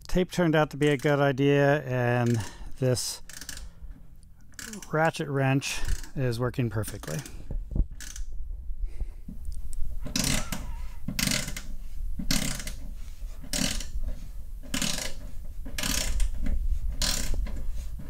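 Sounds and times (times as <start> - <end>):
ratchet wrench clicking: 3.2 - 3.7, 4.5 - 4.9, 8.0 - 8.3, 10.1 - 10.6, 11.2 - 11.7, 12.3 - 12.8, 13.5 - 13.9, 14.6 - 15.2, 15.8 - 16.3, 17.0 - 17.4.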